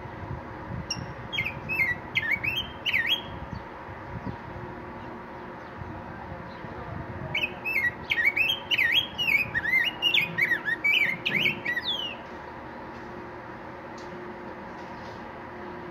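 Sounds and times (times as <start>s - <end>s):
bird warbling song: 0.9s - 5.9s, 6.5s - 12.4s.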